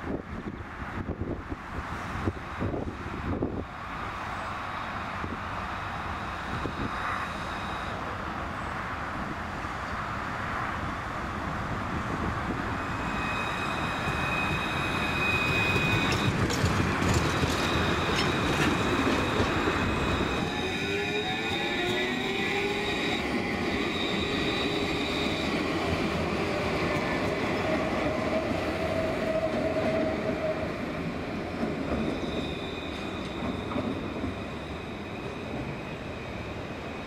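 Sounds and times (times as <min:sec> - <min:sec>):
tram wheels rumbling: 0:00.0 - 0:37.0
high wheel squeal: 0:06.1 - 0:08.0, 0:12.7 - 0:25.8, 0:31.8 - 0:37.0
rising whine: 0:12.6 - 0:16.4.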